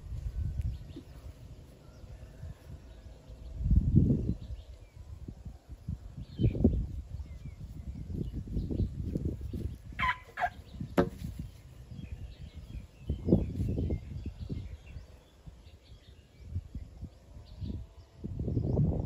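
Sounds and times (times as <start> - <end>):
fowl calling: 10.0 - 10.6.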